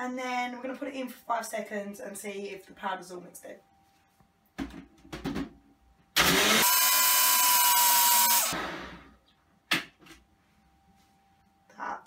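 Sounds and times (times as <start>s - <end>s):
blender motor whining: 6.2s - 9.1s.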